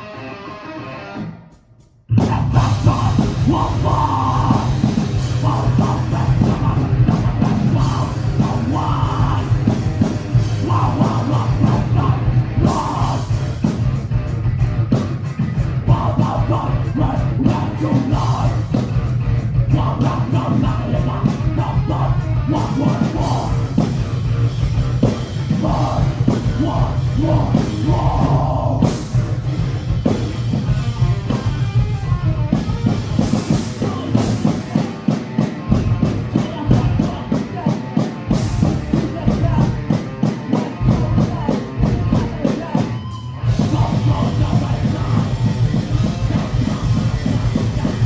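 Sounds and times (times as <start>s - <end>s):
rock band playing live: 0.0s - 48.0s
person singing: 2.1s - 13.7s, 15.8s - 18.9s, 19.5s - 23.8s, 25.4s - 28.9s, 33.6s - 48.0s
rapid drum hits: 43.5s - 48.0s.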